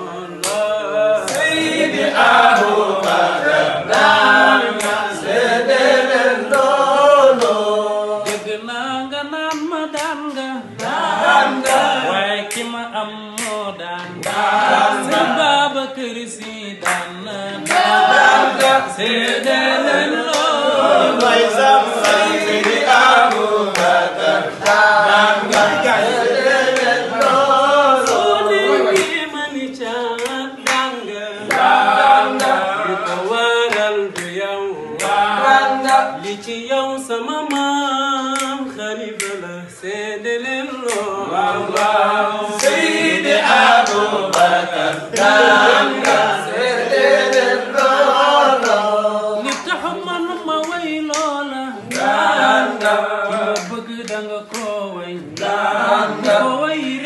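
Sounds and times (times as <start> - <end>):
men chanting unaccompanied: 0.0 - 57.0
sharp claps: 0.4 - 36.6, 37.3 - 39.5, 40.7 - 57.0.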